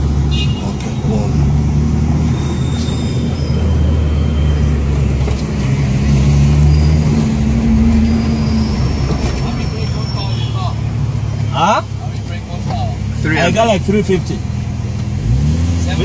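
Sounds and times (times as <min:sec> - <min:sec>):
car engine droning: 0:00.0 - 0:16.0
road noise: 0:00.0 - 0:16.0.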